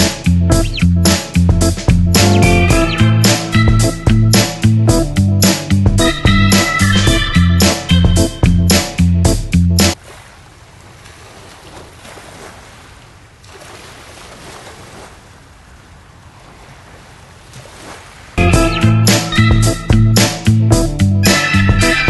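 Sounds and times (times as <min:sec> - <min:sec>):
music: 0:00.0 - 0:10.0, 0:18.4 - 0:22.0
small waves on gravel beach: 0:10.0 - 0:18.4.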